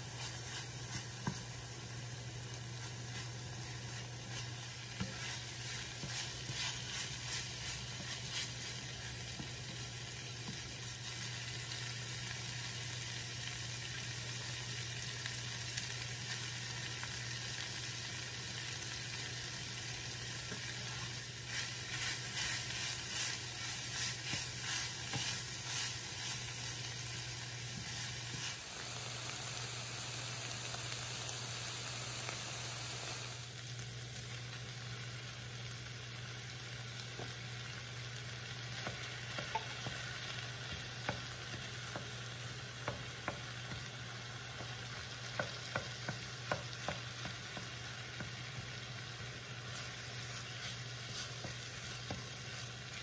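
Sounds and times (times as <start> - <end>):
meat sizzling in a pan: 0.0 - 53.0
wooden spoon stirring: 2.8 - 9.8, 20.5 - 27.0.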